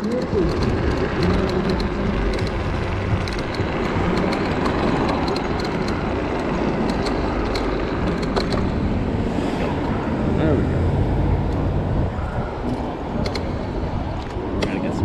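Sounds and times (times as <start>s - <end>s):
small rattling clicks: 0.0s - 8.8s
scooter road and wind noise: 0.0s - 15.0s.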